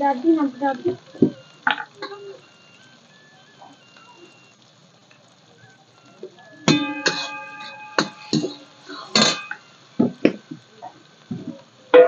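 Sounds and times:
pan ringing: 0:05.6 - 0:09.7
metal ladle clanking on pan: 0:09.2 - 0:09.6.

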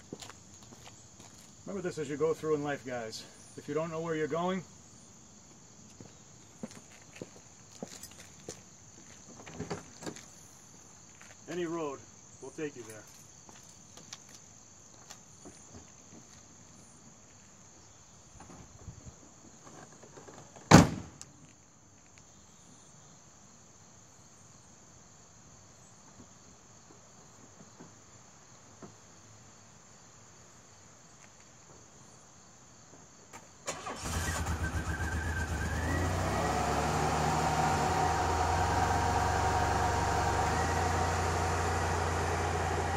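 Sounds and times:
crickets chirring: 0:00.0 - 0:35.6
car engine cranking and running: 0:33.7 - 0:42.9.

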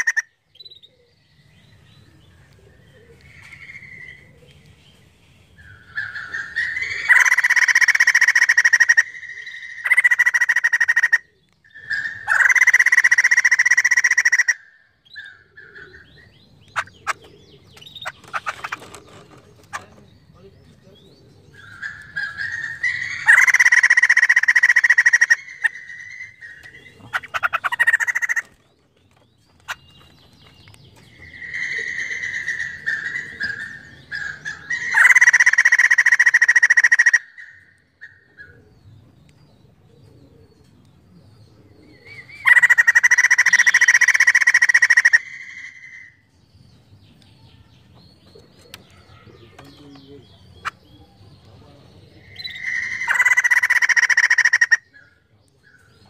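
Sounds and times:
bird rapid chattering: 0:00.0 - 0:00.9, 0:06.0 - 0:14.6, 0:16.6 - 0:37.3, 0:42.4 - 0:45.6, 0:48.4 - 0:55.2
soft bird calls: 0:00.0 - 0:56.0.

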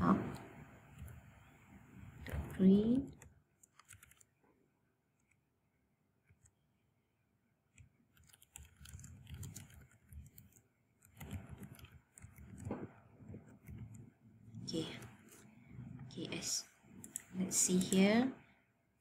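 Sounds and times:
keyboard typing clicks: 0:02.3 - 0:04.3, 0:07.8 - 0:14.0, 0:16.9 - 0:18.0.

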